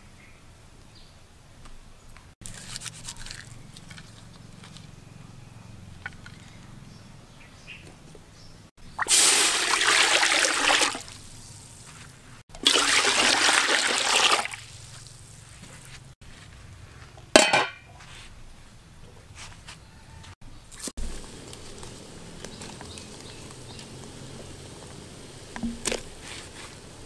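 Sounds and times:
water pouring into metal pot: 9.0 - 11.2, 12.6 - 14.8
metal lid clattering on pot: 17.4 - 17.9.

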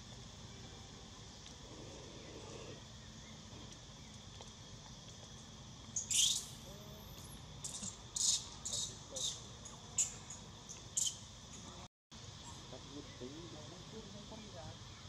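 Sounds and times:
insects droning: 0.0 - 15.0
short high-pitched squeaky calls: 6.0 - 6.6, 7.6 - 9.4, 11.0 - 11.2.

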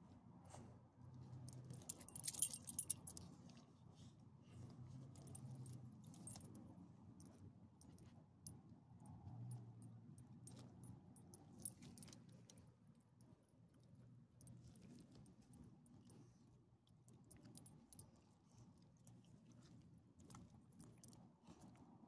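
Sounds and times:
dog leash clips jingling: 1.8 - 3.2.

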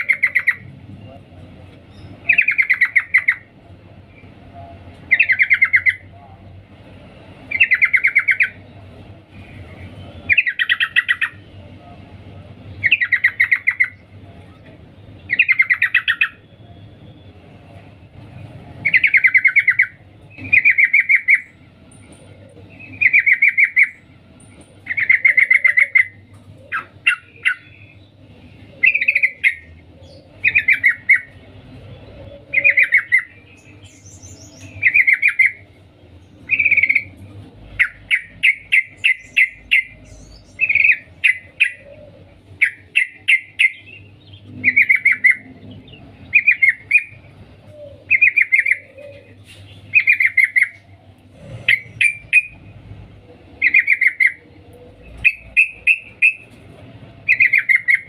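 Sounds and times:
bulbul chattering calls: 0.0 - 0.7, 1.9 - 3.6, 5.1 - 6.2, 7.5 - 8.7, 9.3 - 11.5, 12.8 - 16.5, 18.8 - 21.6, 22.7 - 24.0, 24.8 - 28.1, 28.7 - 52.6, 53.5 - 56.6, 57.2 - 58.0.

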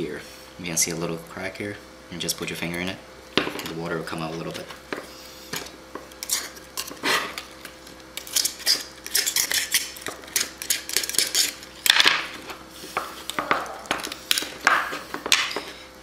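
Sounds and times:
knife scraping clam shell: 6.2 - 7.5, 8.2 - 11.7.

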